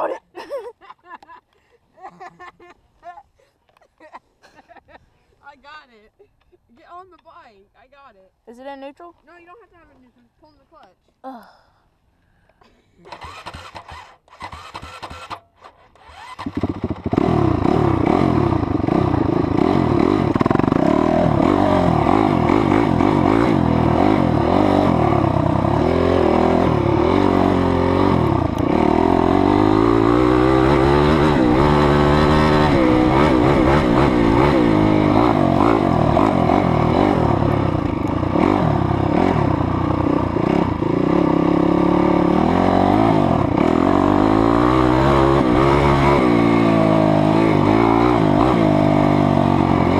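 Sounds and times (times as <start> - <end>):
dirt bike engine revving: 13.1 - 49.9.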